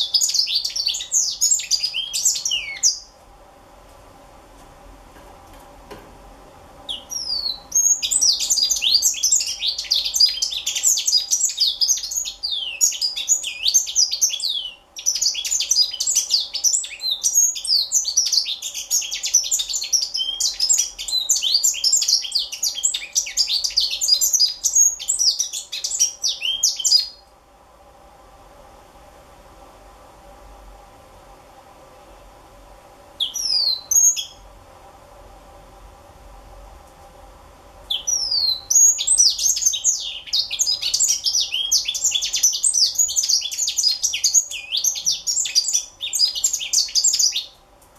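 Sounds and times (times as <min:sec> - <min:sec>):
bird twittering song: 0:00.0 - 0:03.2, 0:06.9 - 0:27.2, 0:33.2 - 0:34.4, 0:37.9 - 0:47.6.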